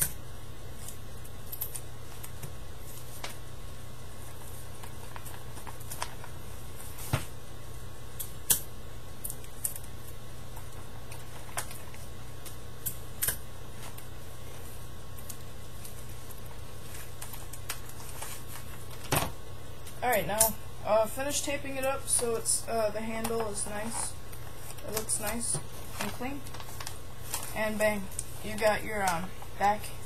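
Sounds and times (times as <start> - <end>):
paper and tape crinkling: 4.1 - 7.4, 9.2 - 20.4, 21.7 - 30.0.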